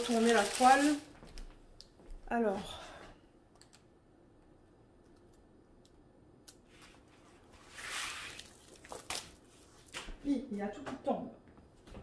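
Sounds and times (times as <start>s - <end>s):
plastic film rustling: 0.0s - 1.5s, 7.0s - 10.0s.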